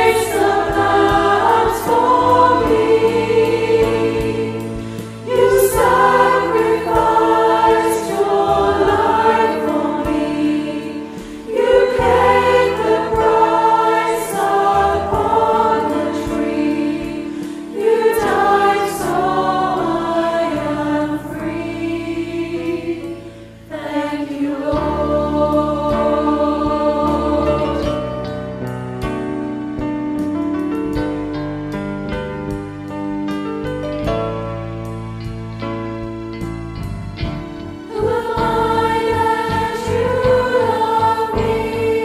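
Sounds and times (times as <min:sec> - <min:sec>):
children's choir singing: 0:00.0 - 0:28.2, 0:37.9 - 0:42.0.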